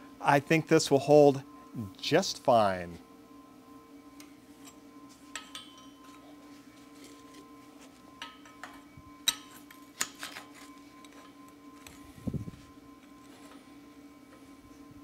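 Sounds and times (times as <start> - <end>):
faint steady hum: 0.0 - 15.0
metallic clinks and taps: 5.3 - 6.2.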